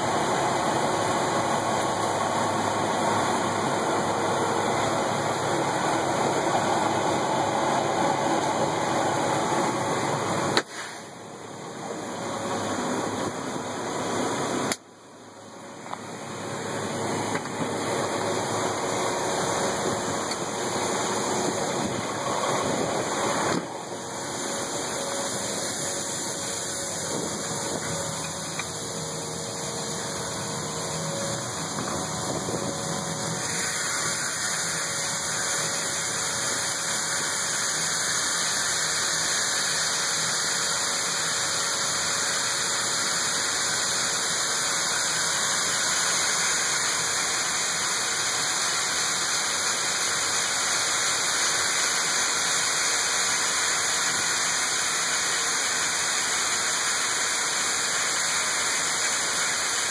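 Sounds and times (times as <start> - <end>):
diesel truck engine idling: 0.0 - 41.2.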